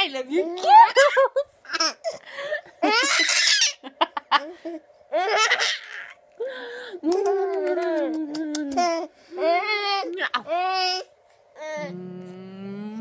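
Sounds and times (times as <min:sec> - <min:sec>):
woman laughing: 0:00.3 - 0:01.9, 0:06.9 - 0:09.6
toddler laughing: 0:02.8 - 0:04.5.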